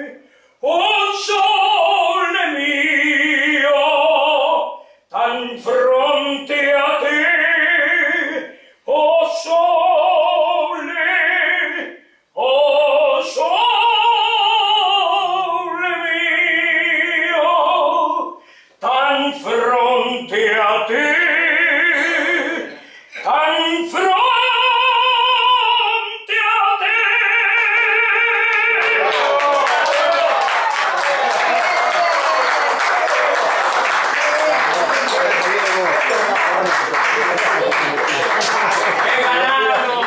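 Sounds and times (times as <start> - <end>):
man singing operatically: 0.0 - 30.4
singer breathing: 0.2 - 0.6, 4.8 - 5.1, 8.5 - 8.9, 18.4 - 18.8, 22.7 - 23.3.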